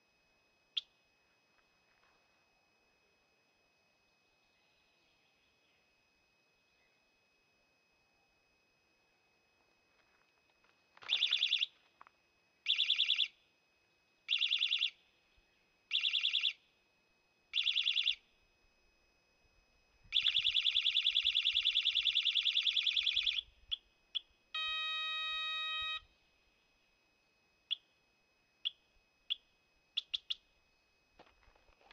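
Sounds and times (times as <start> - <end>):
alarm chirps: 11.0 - 11.8, 12.7 - 13.4, 14.3 - 15.0, 15.9 - 16.6, 17.5 - 18.3, 20.1 - 26.1
warbling bicycle alarm: 11.0 - 11.8, 12.6 - 13.4, 14.3 - 15.0, 15.9 - 16.6, 17.5 - 18.2, 20.1 - 26.1
electronic beeps: 24.6 - 26.0.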